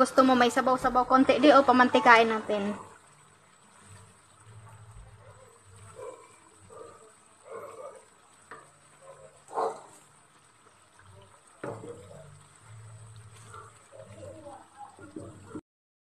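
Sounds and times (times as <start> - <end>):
spatula stirring thick curry: 3.0 - 15.6.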